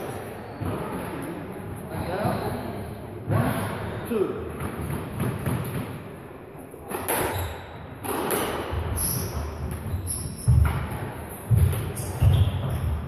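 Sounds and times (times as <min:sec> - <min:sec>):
shoes squeaking on wooden floor: 0:08.8 - 0:13.0
footsteps thudding: 0:09.6 - 0:13.0.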